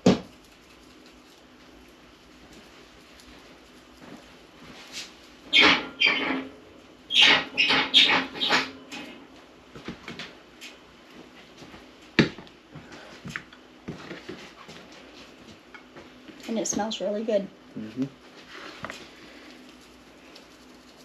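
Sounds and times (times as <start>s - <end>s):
seasoning bottle shaking: 19.7s - 21.0s.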